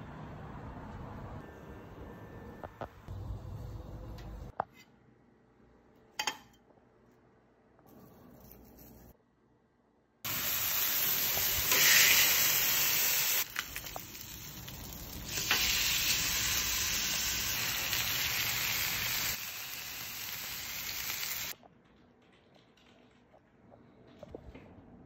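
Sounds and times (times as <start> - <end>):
steaks sizzling on griddle: 10.3 - 21.5.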